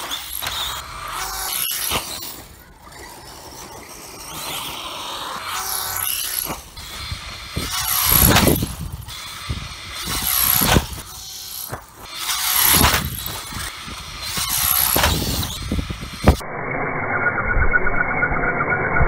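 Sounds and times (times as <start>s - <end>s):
rc car electric motor whine: 0.0s - 19.0s.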